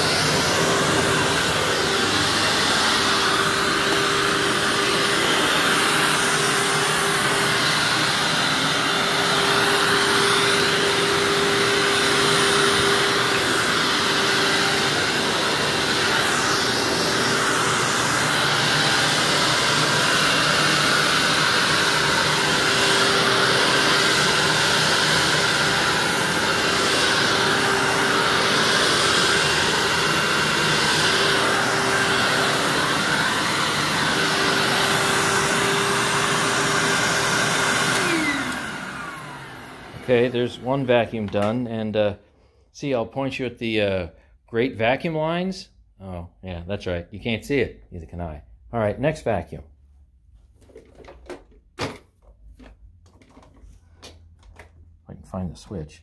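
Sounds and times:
vacuum motor winding down: 0.0s - 41.4s
vacuum cleaner running: 0.0s - 41.7s.

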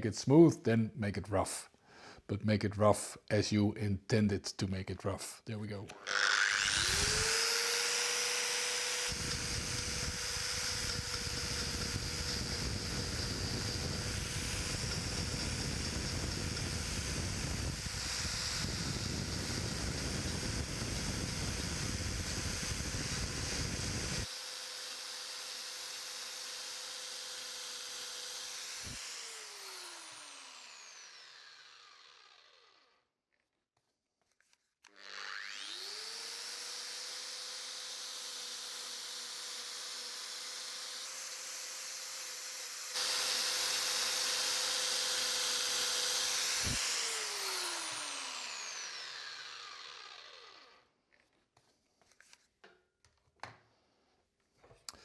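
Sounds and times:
motor whining: 5.9s - 20.6s, 43.0s - 50.8s
motor winding down: 5.9s - 24.3s, 25.0s - 32.8s, 34.9s - 41.4s, 42.6s - 50.8s
power carving tool grinding wood: 5.9s - 32.9s, 34.9s - 50.9s.

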